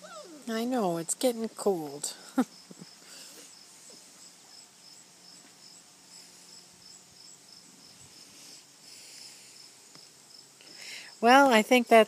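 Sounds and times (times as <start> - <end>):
cricket chirping: 2.2 - 11.4.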